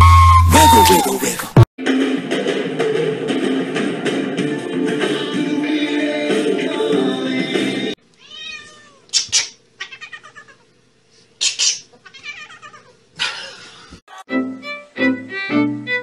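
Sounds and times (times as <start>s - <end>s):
background music: 1.8s - 8.0s, 14.2s - 16.0s
cat yowling: 8.2s - 10.7s, 12.0s - 13.0s.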